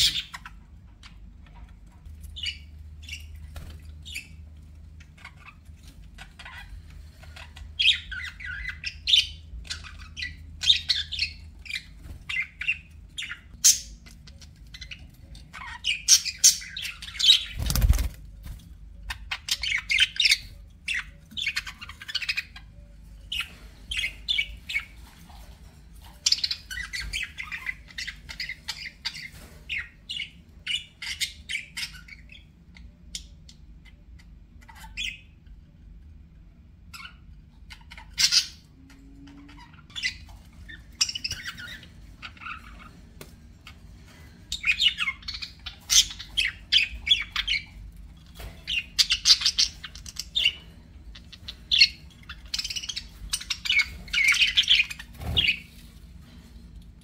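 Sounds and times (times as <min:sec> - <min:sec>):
budgerigars chirping: 0:00.0 - 0:01.6, 0:06.2 - 0:18.1, 0:19.1 - 0:25.2, 0:26.2 - 0:35.4, 0:36.9 - 0:38.7, 0:39.5 - 0:42.9, 0:44.5 - 0:47.8, 0:48.4 - 0:55.7.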